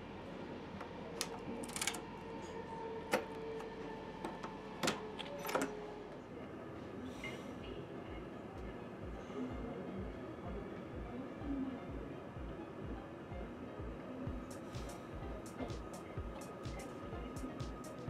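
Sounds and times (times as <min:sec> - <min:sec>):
steady electrical hum: 0:07.4 - 0:18.0.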